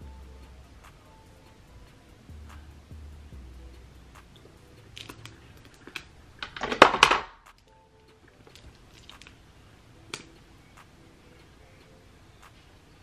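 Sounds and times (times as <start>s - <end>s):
plastic items clattering: 5.0s - 7.4s.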